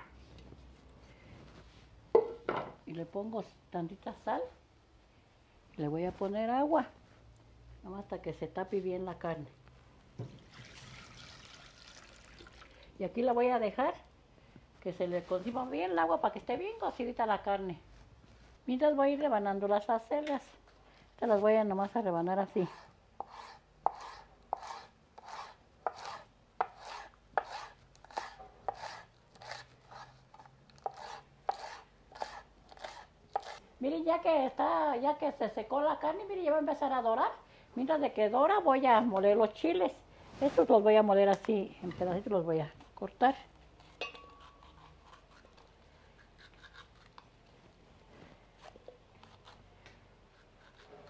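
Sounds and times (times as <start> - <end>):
knife slicing leaves on wooden board: 22.7 - 33.6.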